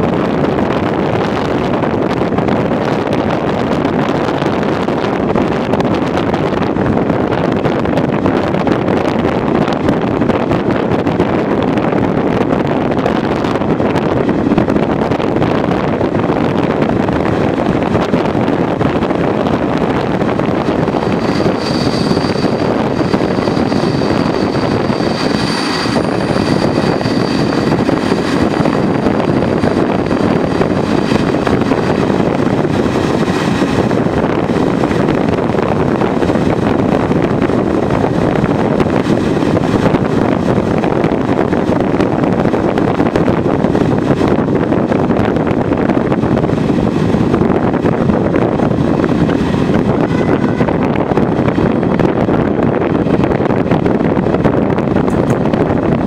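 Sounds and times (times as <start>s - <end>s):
train rushing at speed: 0.0s - 56.0s
wind buffeting microphone: 0.0s - 56.0s
faint high tone: 50.0s - 50.9s.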